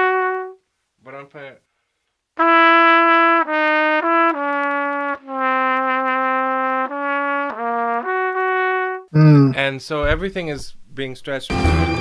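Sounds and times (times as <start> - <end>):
solo trumpet playing: 0.0 - 0.6, 2.4 - 9.1.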